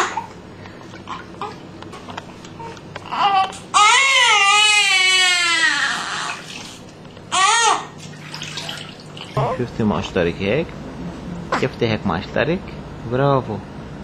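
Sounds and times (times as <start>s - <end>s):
baby crying: 0.0s - 0.4s, 1.1s - 6.6s, 7.3s - 8.0s.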